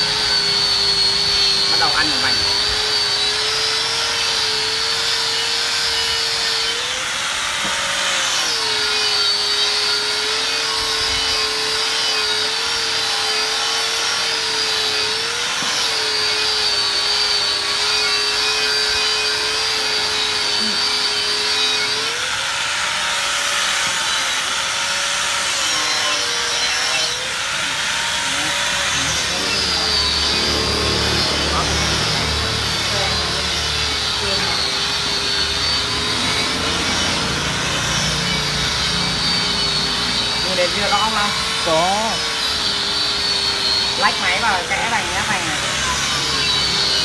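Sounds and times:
grinder motor whine: 0:00.0 - 0:47.0
grinding hiss on metal: 0:15.1 - 0:47.0.

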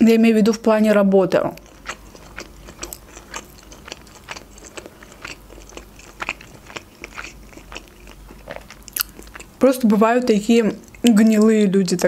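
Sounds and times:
person chewing food: 0:01.6 - 0:09.6, 0:10.7 - 0:12.0.

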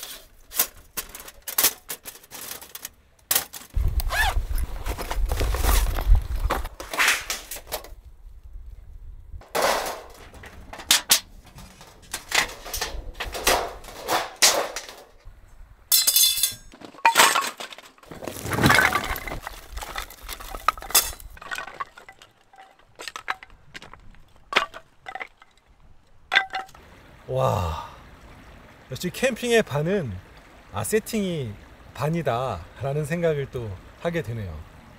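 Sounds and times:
clinks and knocks of hard items: 0:00.0 - 0:03.8, 0:09.4 - 0:15.2, 0:15.9 - 0:25.6, 0:26.3 - 0:26.8
short rattle: 0:09.4 - 0:15.3.

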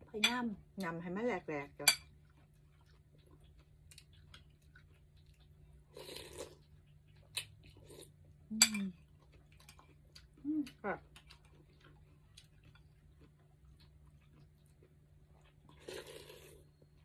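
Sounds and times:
person chewing quietly: 0:02.0 - 0:17.0
slurp of noodles and broth: 0:05.9 - 0:06.6, 0:15.8 - 0:16.6.

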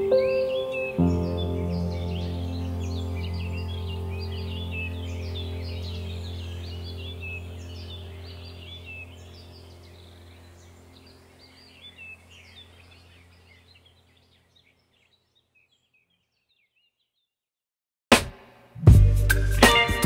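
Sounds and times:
birds chirping: 0:00.0 - 0:17.4
low steady drone: 0:02.0 - 0:13.5.

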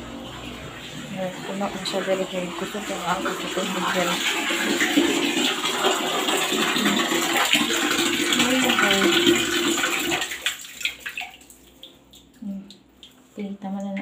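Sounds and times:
water stream splashing into basin: 0:00.8 - 0:12.4
water drips: 0:10.4 - 0:14.0.

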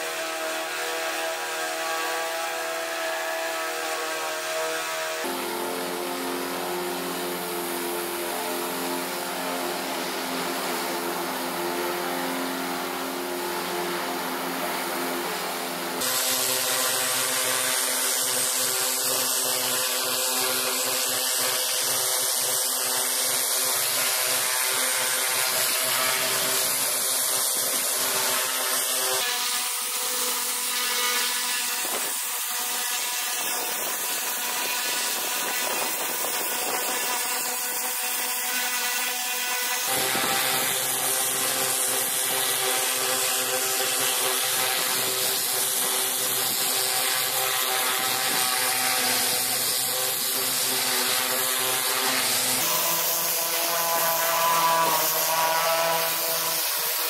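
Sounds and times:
spray blasting roof tiles: 0:00.0 - 0:57.0
pressure washer motor humming: 0:05.2 - 0:57.0.

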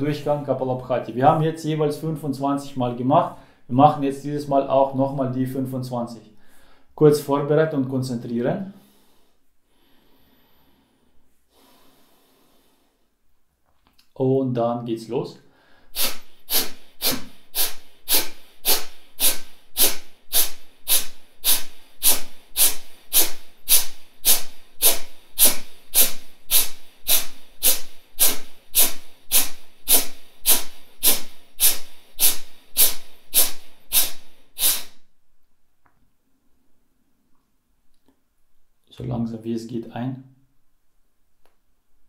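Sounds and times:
sharp nasal exhalations: 0:08.8 - 0:13.2, 0:15.5 - 0:35.1.

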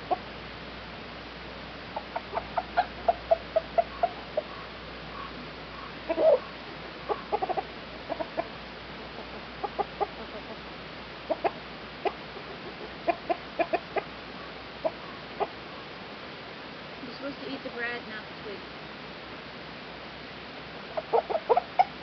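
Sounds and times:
hens clucking: 0:00.0 - 0:00.3, 0:01.9 - 0:16.0, 0:20.8 - 0:22.0.

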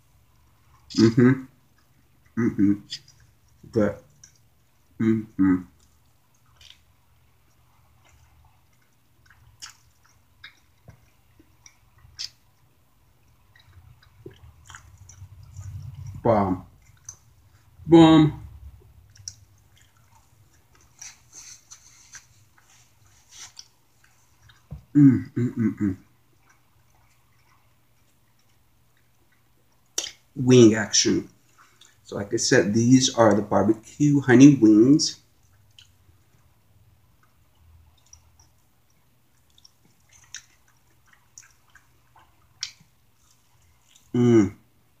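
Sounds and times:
man chewing: 0:00.1 - 0:05.0, 0:05.7 - 0:17.8, 0:18.4 - 0:30.4, 0:31.3 - 0:32.1, 0:35.2 - 0:45.0
closed-mouth hums of enjoyment: 0:05.0 - 0:05.7, 0:24.9 - 0:26.1.

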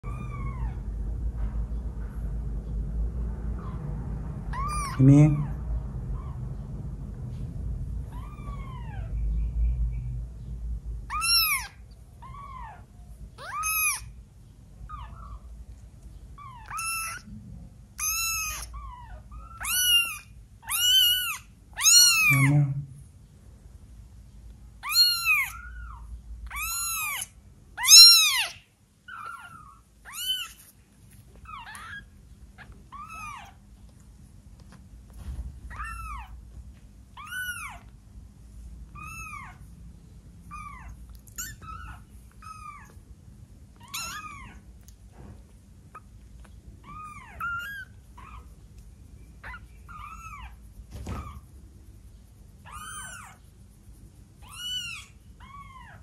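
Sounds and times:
kitten mewing: 0:04.5 - 0:05.6, 0:11.1 - 0:14.2, 0:16.4 - 0:17.4, 0:18.0 - 0:23.0, 0:24.8 - 0:30.7, 0:31.4 - 0:33.6, 0:37.2 - 0:38.0, 0:40.5 - 0:43.0, 0:43.7 - 0:44.9, 0:52.7 - 0:53.4, 0:54.4 - 0:56.0.

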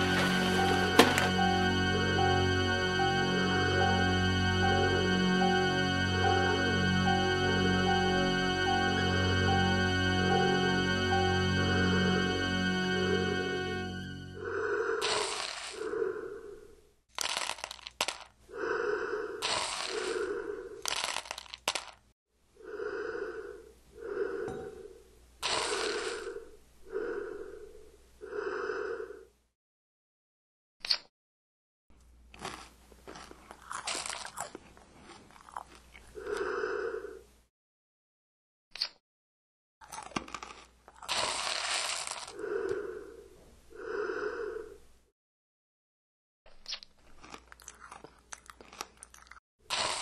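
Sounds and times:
heavy breathing through a mask: 0:14.3 - 0:16.8, 0:18.5 - 0:20.9, 0:22.6 - 0:29.4, 0:36.2 - 0:37.3, 0:42.1 - 0:44.9
crunching dry cereal: 0:15.0 - 0:15.8, 0:17.1 - 0:18.4, 0:19.4 - 0:22.0, 0:32.4 - 0:36.4, 0:39.8 - 0:42.4, 0:46.6 - 0:50.0
hand rustling in snack bowl: 0:20.8 - 0:22.0.

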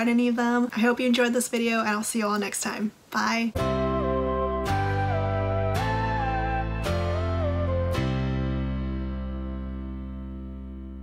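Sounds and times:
final chord ringing: 0:03.6 - 0:11.0.

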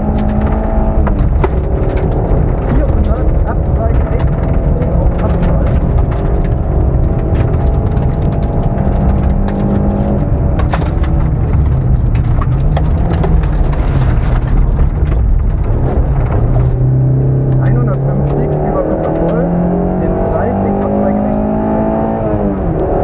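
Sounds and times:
gravel pinging against car underside: 0:00.0 - 0:20.8
car engine running hard: 0:00.0 - 0:23.0.

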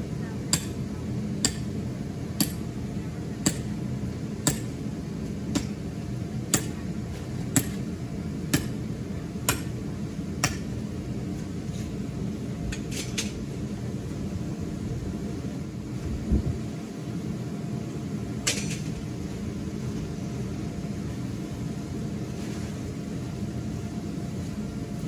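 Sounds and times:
hammer striking metal stake: 0:00.5 - 0:00.8, 0:01.4 - 0:01.7, 0:02.4 - 0:02.6, 0:03.5 - 0:03.7, 0:04.5 - 0:04.8, 0:06.5 - 0:06.8, 0:07.6 - 0:07.8, 0:08.5 - 0:08.8, 0:09.5 - 0:09.7, 0:10.4 - 0:10.7.

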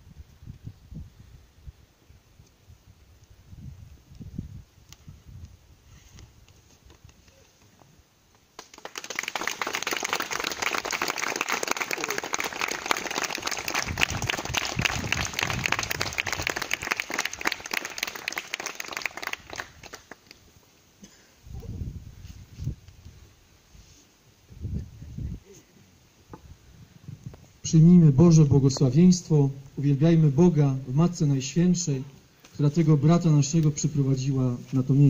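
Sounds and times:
people applauding: 0:08.6 - 0:20.4.

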